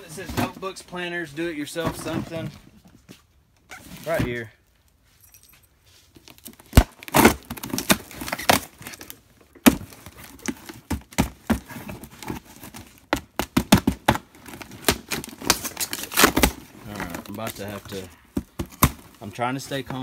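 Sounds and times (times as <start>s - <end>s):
box tearing and crinkling: 6.4s - 19.2s.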